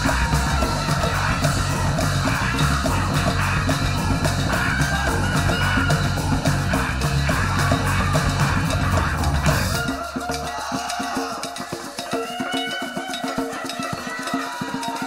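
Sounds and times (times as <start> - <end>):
heavy rock music: 0.0 - 10.0
fast dense drumming: 0.0 - 15.0.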